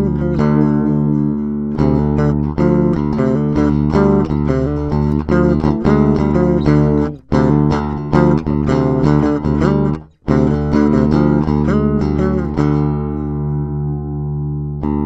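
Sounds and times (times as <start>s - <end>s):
electric guitar picked notes: 0.0s - 15.0s
low bass notes: 0.0s - 15.0s.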